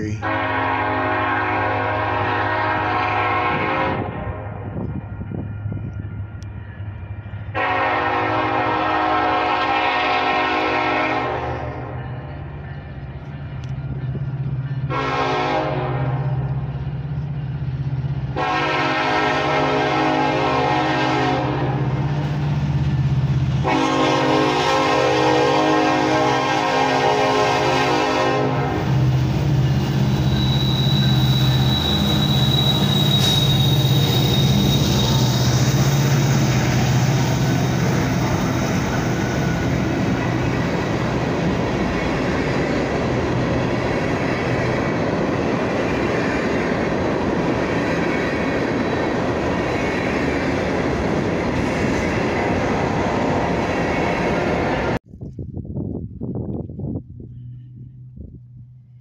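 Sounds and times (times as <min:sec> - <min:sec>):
diesel locomotive engines droning: 0:00.0 - 0:55.1, 0:56.8 - 0:59.0
train cars rumbling and clattering: 0:00.0 - 0:59.0
high wheel squeal: 0:29.8 - 0:39.8.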